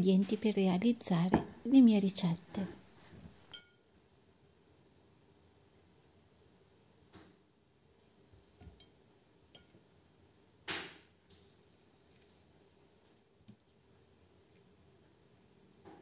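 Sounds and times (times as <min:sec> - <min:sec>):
fork clinking on ceramic dish: 0:03.5 - 0:03.8
sharp knock: 0:10.7 - 0:11.0.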